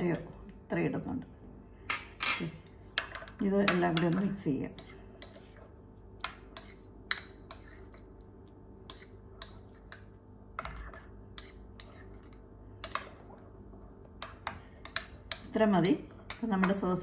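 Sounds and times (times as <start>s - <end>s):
metal spoon scraping ceramic bowl: 6.5s - 8.0s, 10.6s - 12.3s.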